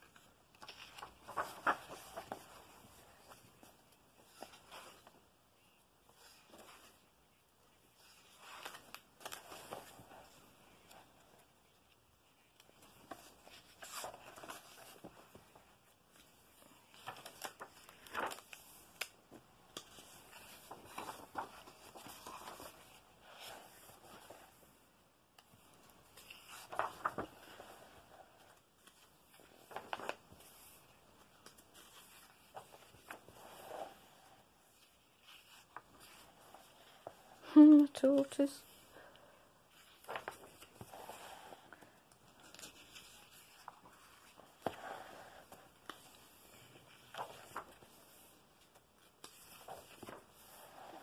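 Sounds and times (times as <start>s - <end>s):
book pages turning: 0.0s - 5.2s, 6.0s - 38.8s, 39.7s - 51.0s.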